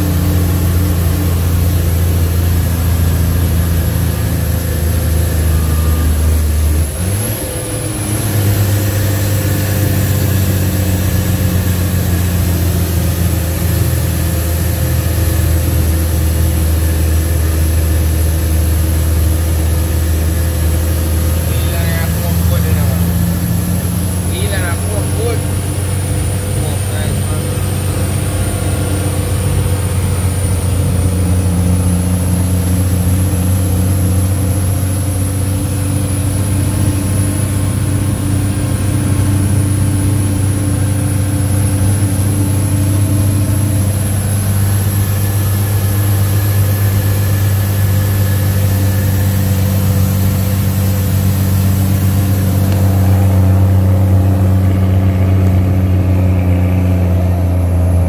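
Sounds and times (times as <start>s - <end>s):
truck diesel engine drone: 0.0s - 58.0s.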